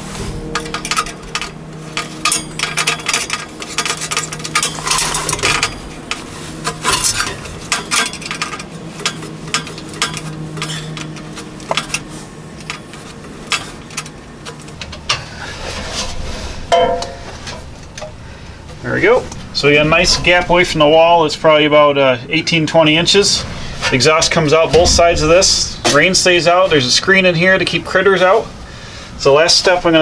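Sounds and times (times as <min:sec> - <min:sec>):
metallic clinks and scrapes: 0:00.0 - 0:18.1
low hum: 0:00.0 - 0:29.2.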